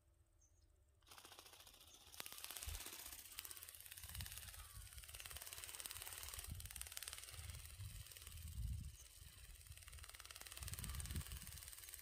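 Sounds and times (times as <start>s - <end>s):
wind buffeting microphone: 6.2s - 11.9s.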